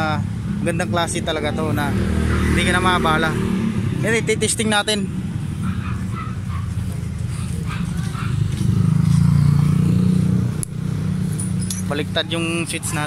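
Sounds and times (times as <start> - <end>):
two-stroke motorcycle engine revving: 0.2 - 5.5, 8.2 - 13.0.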